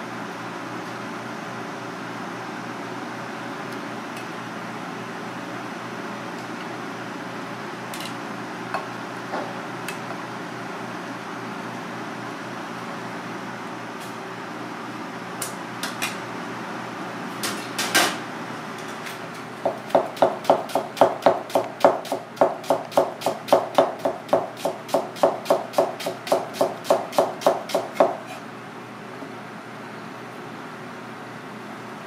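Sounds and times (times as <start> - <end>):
knife chopping on plastic board: 19.6 - 28.2.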